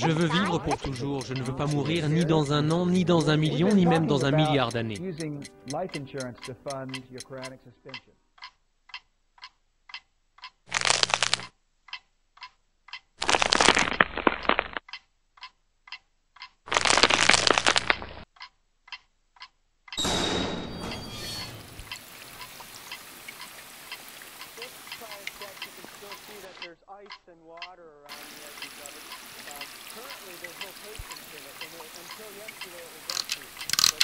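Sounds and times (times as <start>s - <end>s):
clock-like ticking: 0.0s - 13.4s, 14.8s - 34.0s
harsh crackling bursts: 10.7s - 11.5s, 13.2s - 14.8s, 16.7s - 18.2s
steady hiss: 21.5s - 26.7s, 28.1s - 34.0s.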